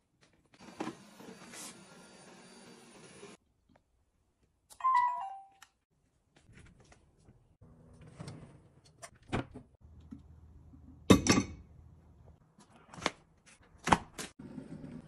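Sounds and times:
electronic chime falling tones: 0:04.8 - 0:05.5.

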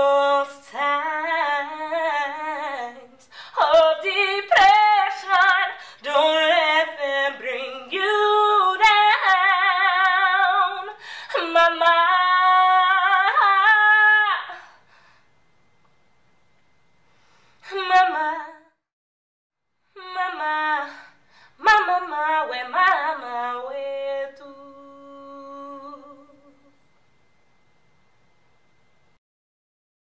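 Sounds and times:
woman singing unaccompanied: 0:00.0 - 0:14.7, 0:17.7 - 0:18.8, 0:19.9 - 0:26.8.

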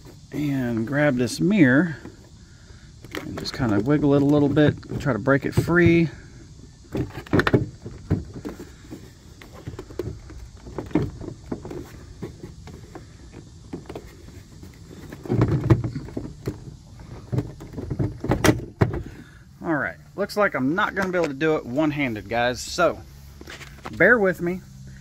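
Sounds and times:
side mirror knocking and rattling: 0:15.2 - 0:19.2.

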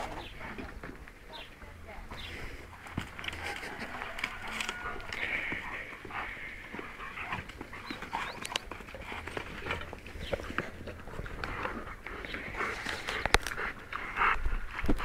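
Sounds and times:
dog panting hard: 0:04.8 - 0:15.0.

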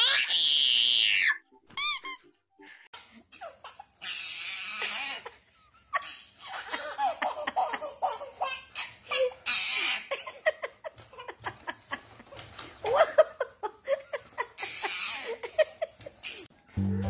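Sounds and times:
baby laughing: 0:03.1 - 0:11.7, 0:12.5 - 0:16.5.

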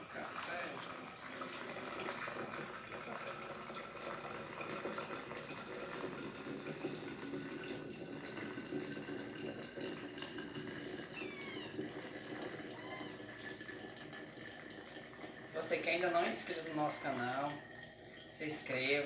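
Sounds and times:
coffee trickling through cloth filter: 0:00.0 - 0:19.0.

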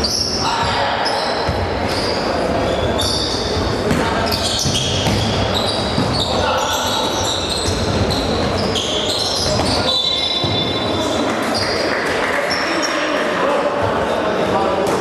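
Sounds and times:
sneakers squeaking: 0:00.0 - 0:13.1
voices echoing in a hall: 0:00.0 - 0:15.0
basketball bouncing: 0:03.8 - 0:06.3, 0:07.6 - 0:08.7, 0:09.4 - 0:09.8.

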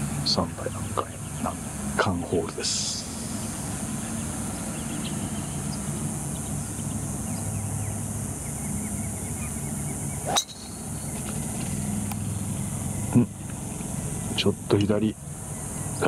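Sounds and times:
faint bird chirps: 0:02.6 - 0:16.0
golf club striking ball: 0:10.2 - 0:12.2.

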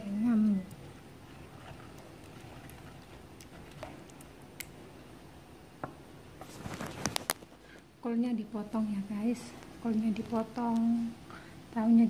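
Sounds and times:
wet squishing of stirred sauce: 0:00.0 - 0:05.2.

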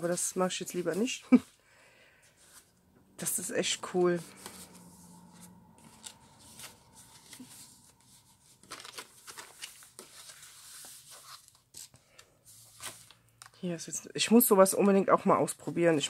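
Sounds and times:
paper pages turning: 0:03.6 - 0:13.6.

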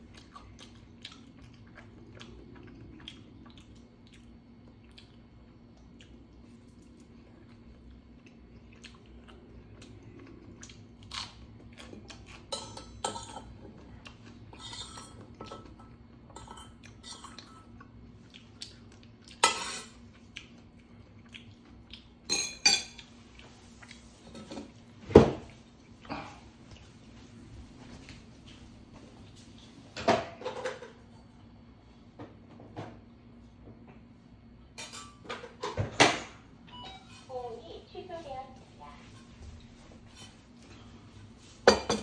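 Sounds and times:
utensils clinking on metal bowl: 0:22.3 - 0:23.0.

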